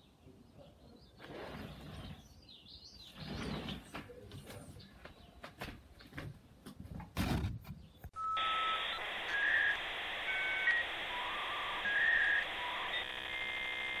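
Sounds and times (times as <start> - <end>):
short electronic beeps: 8.2 - 14.0.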